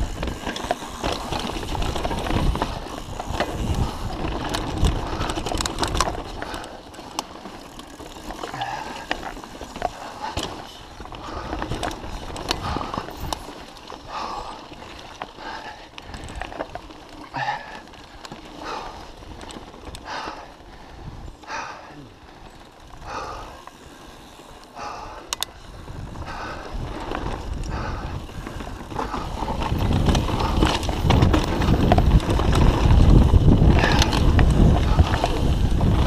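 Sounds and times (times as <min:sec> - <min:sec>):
bike rattling over bumps: 0:00.0 - 0:36.0
bike tyres on dirt: 0:00.0 - 0:36.0
person breathing heavily: 0:01.0 - 0:07.0, 0:08.4 - 0:13.2, 0:14.0 - 0:16.6, 0:17.3 - 0:19.3, 0:19.9 - 0:31.0, 0:33.6 - 0:35.8.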